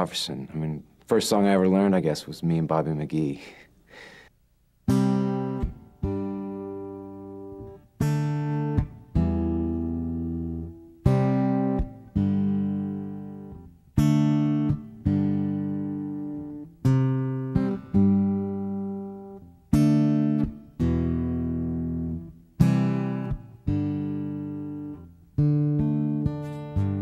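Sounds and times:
acoustic guitar strumming chords: 0:04.8 - 0:27.0.

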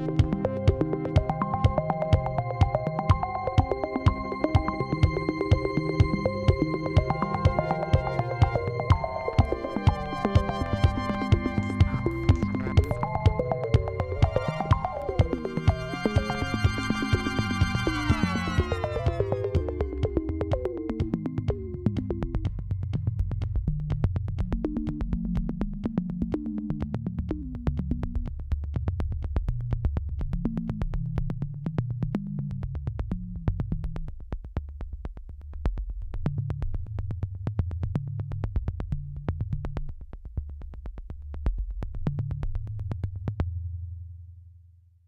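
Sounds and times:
synthesizer bass line: 0:00.0 - 0:28.2
fast ticking beat: 0:00.0 - 0:32.0.

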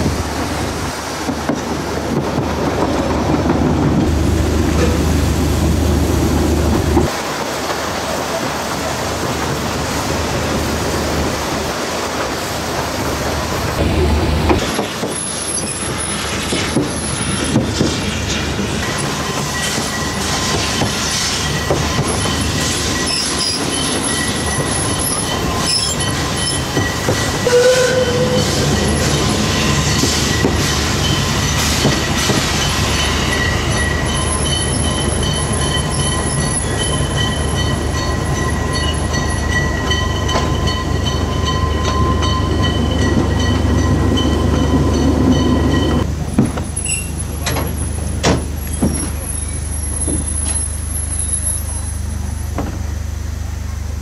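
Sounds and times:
train wheels rumbling on rail: 0:00.0 - 0:54.0
wheel squeal: 0:18.8 - 0:32.4, 0:46.7 - 0:47.2.

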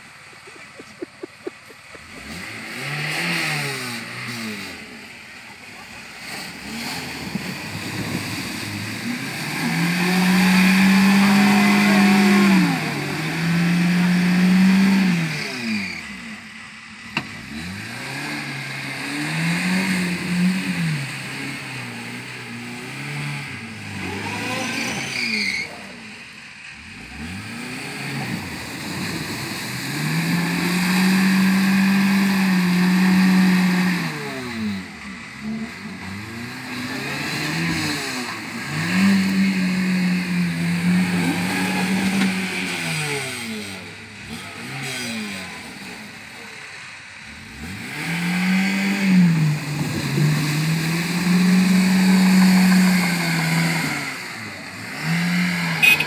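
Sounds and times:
car engine revving: 0:00.0 - 0:56.0
water and mud splashing: 0:05.4 - 0:13.8, 0:27.0 - 0:33.5.

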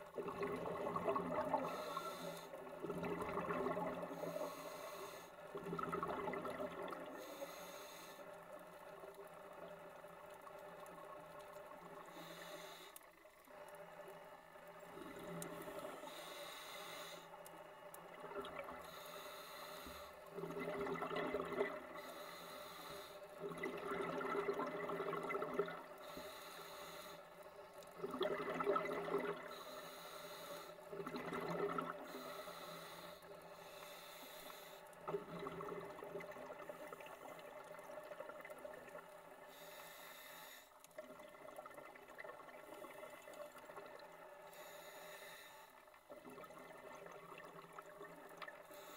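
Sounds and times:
exhaled bubbles gurgling underwater: 0:00.0 - 0:07.6, 0:17.8 - 0:19.4, 0:20.2 - 0:22.5, 0:23.3 - 0:26.5, 0:27.4 - 0:30.0, 0:30.8 - 0:33.9, 0:34.6 - 0:39.8, 0:40.8 - 0:44.8, 0:45.9 - 0:48.9
regulator hiss: 0:07.2 - 0:08.3, 0:12.0 - 0:13.0, 0:15.5 - 0:17.4, 0:18.9 - 0:20.2, 0:22.0 - 0:23.3, 0:26.0 - 0:27.4, 0:29.5 - 0:30.8, 0:32.0 - 0:34.9, 0:39.5 - 0:40.8, 0:44.5 - 0:45.8.

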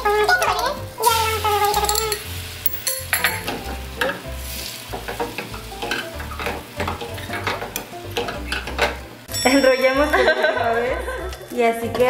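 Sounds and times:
egg sizzling in a frying pan: 0:00.0 - 0:09.4
spoon scraping a glass bowl: 0:01.7 - 0:02.2.

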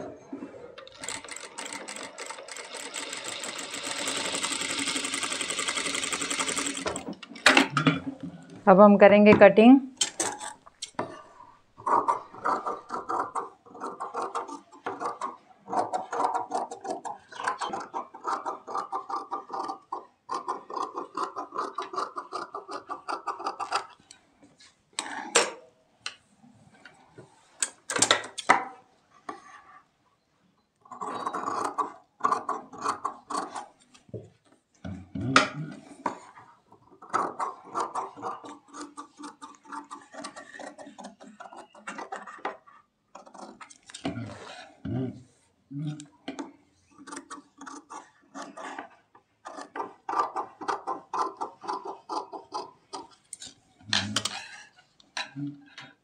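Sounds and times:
sewing machine stitching: 0:00.8 - 0:07.7.

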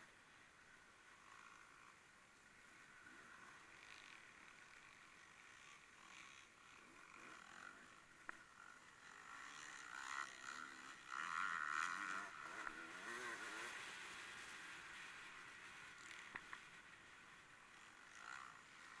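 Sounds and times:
distant racing engine: 0:02.9 - 0:16.5.

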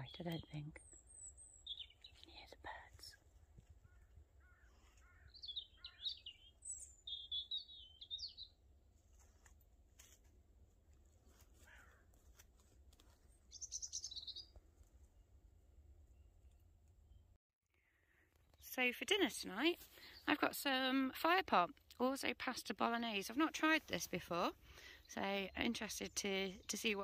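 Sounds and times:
songbird twittering: 0:00.0 - 0:03.1, 0:03.8 - 0:08.6, 0:13.5 - 0:14.6.

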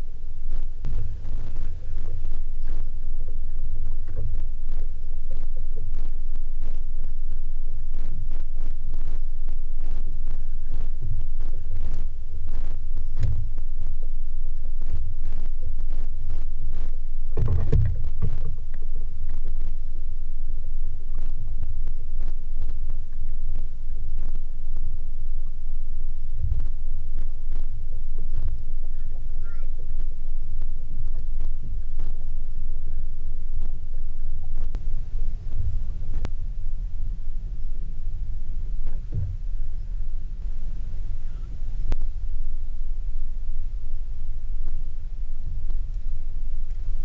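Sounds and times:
boat motor rumble: 0:00.0 - 0:47.0
knocks and thumps: 0:17.4 - 0:18.5.

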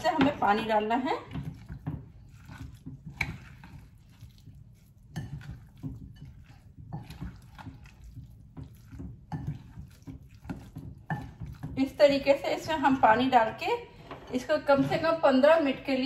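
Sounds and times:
wet mixture squelching by hand: 0:00.0 - 0:13.7.

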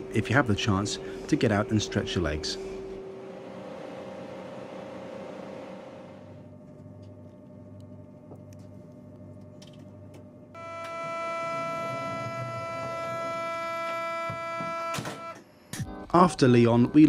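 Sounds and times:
door-closing warning tone: 0:10.6 - 0:15.5.

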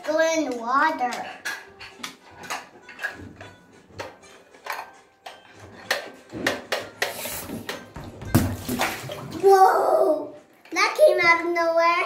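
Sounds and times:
plastic toy clicking and knocking: 0:00.0 - 0:07.9
water washing: 0:08.2 - 0:10.1.

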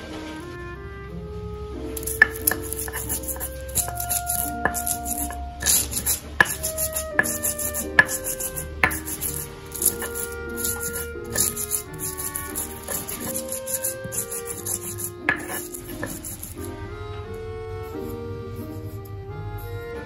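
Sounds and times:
background music with melody: 0:00.0 - 0:20.0
stone pestle knocking in mortar: 0:02.0 - 0:16.7
stone grinding scrapes: 0:02.0 - 0:16.8.

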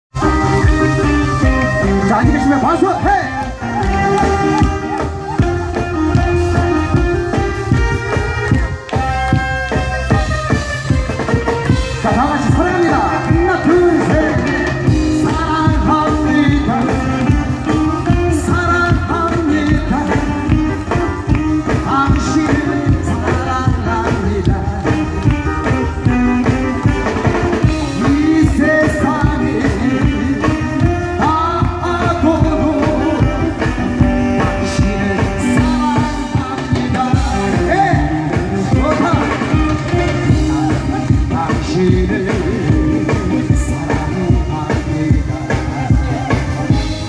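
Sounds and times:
live pop band playing: 0:00.1 - 0:47.0
man singing into microphone: 0:11.9 - 0:26.7, 0:27.4 - 0:47.0.

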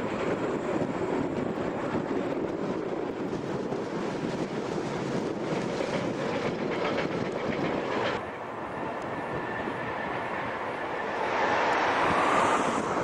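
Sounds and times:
wheels clicking over rail joints: 0:00.0 - 0:09.2
train passing: 0:00.0 - 0:13.0
wind-like noise: 0:00.0 - 0:13.0.

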